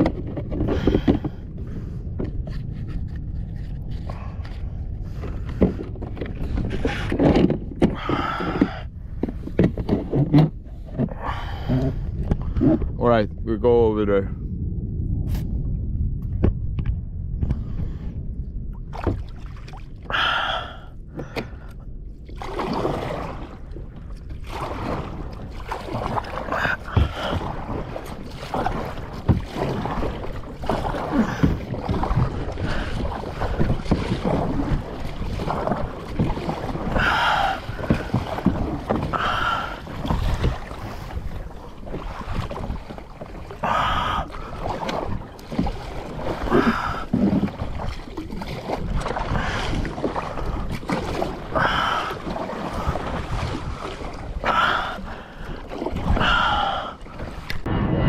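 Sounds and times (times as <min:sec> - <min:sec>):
low rumble: 0:00.0 - 0:58.0
paddle strokes splashing: 0:22.2 - 0:57.7.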